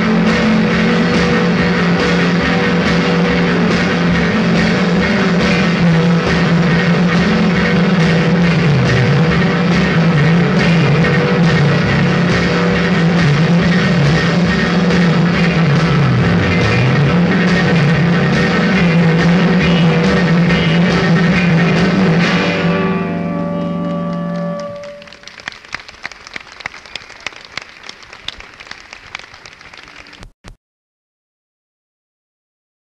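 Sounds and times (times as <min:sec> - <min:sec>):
live rock band playing: 0:00.0 - 0:25.5.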